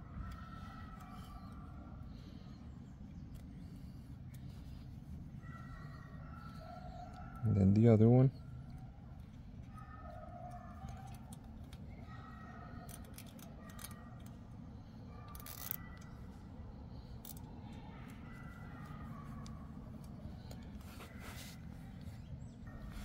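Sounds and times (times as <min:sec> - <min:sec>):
zip tie ratchet clicks: 0:15.3 - 0:16.1.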